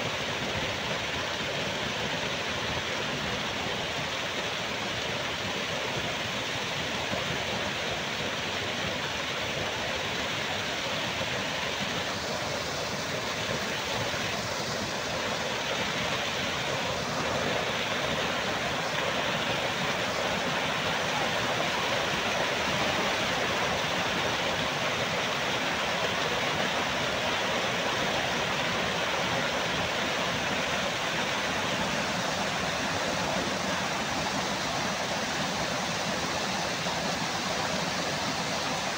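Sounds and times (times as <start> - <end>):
waterfall rushing onto rock: 0.0 - 38.9.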